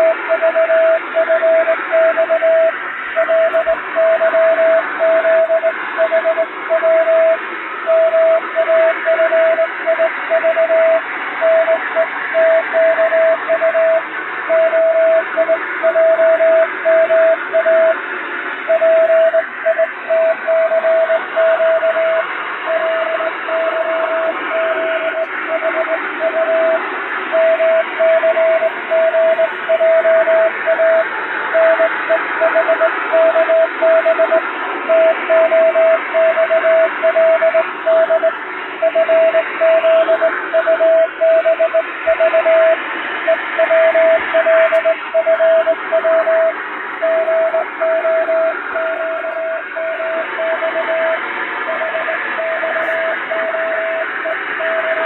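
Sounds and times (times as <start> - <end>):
morse code tone: 0.0 - 18.0, 18.6 - 55.0
radio noise hiss: 0.0 - 55.0.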